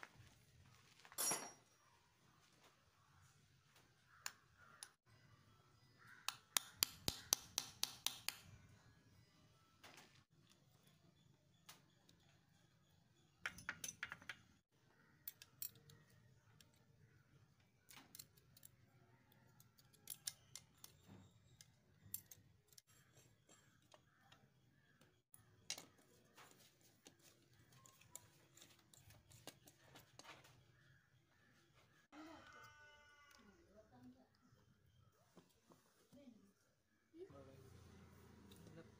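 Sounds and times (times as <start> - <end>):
small tools tapping metal cover: 13.4 - 14.6.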